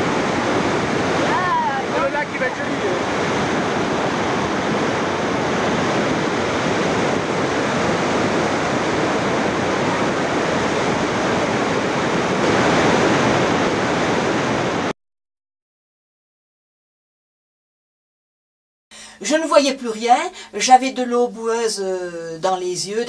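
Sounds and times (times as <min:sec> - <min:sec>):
torrent rushing: 0:00.0 - 0:14.9.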